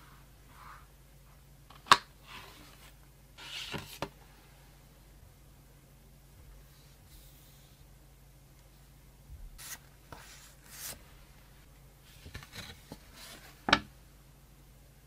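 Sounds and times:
paper rustling and sliding: 0:02.2 - 0:04.1, 0:09.6 - 0:11.2, 0:12.1 - 0:13.7.

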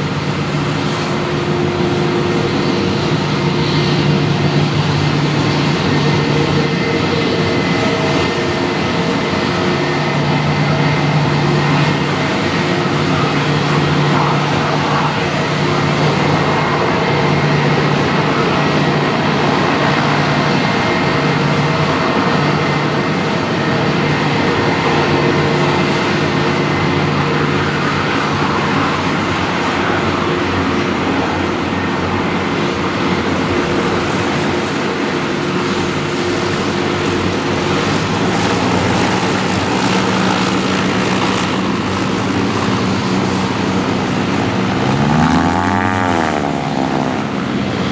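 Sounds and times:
jet engines idling: 0:00.0 - 0:47.9
passing noise sweeping in pitch: 0:43.4 - 0:47.9.

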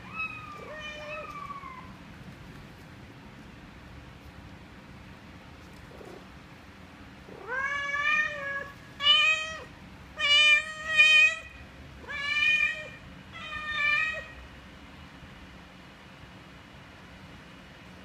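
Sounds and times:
cat meowing: 0:00.0 - 0:02.0, 0:07.3 - 0:14.4.

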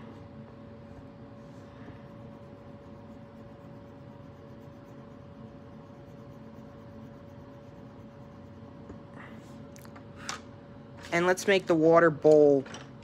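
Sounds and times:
crayon scribbling on paper: 0:02.0 - 0:08.8.

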